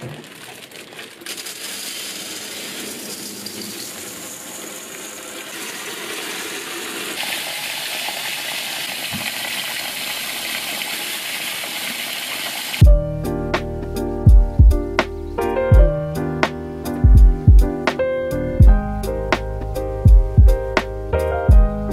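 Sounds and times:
rice pouring into metal basin: 0:00.0 - 0:12.1
water running over rice: 0:00.0 - 0:12.8.

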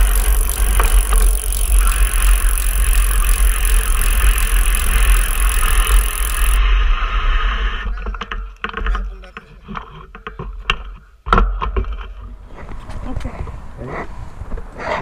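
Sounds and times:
tyres on paved trail: 0:00.0 - 0:06.6, 0:08.1 - 0:15.0.

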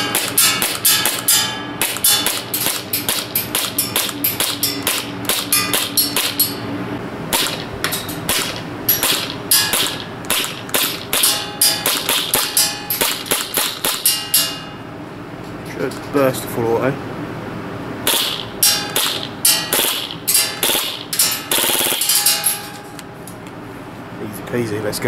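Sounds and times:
airsoft gun shots: 0:07.3 - 0:07.7, 0:08.3 - 0:14.1, 0:18.1 - 0:22.1.

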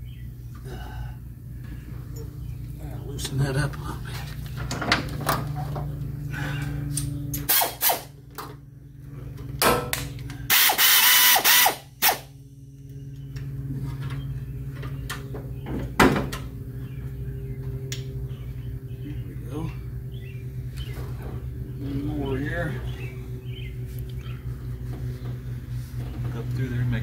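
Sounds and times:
steady low hum: 0:00.0 - 0:27.0
ratchet wrench clicking: 0:10.5 - 0:12.2.

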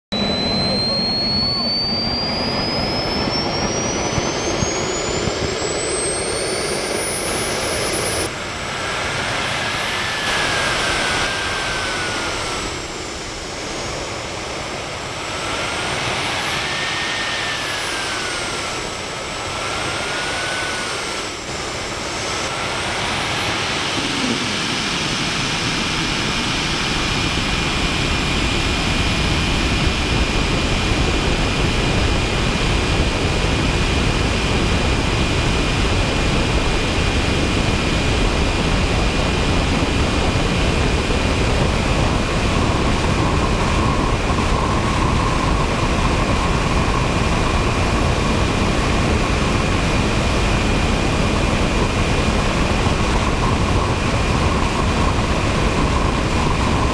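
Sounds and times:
model jet engine whining: 0:00.0 - 0:56.9
steady rush: 0:00.2 - 0:28.1.

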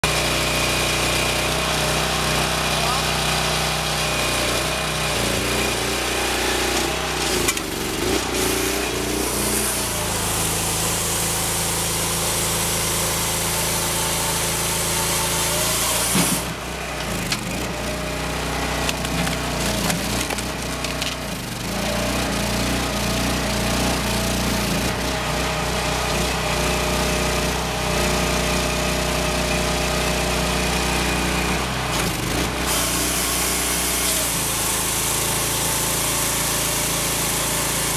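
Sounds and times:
engine running: 0:00.0 - 0:37.9
hydraulic splitter: 0:00.0 - 0:37.9
saw cutting a log: 0:00.0 - 0:37.9
wood cracking and splintering: 0:18.6 - 0:21.7.

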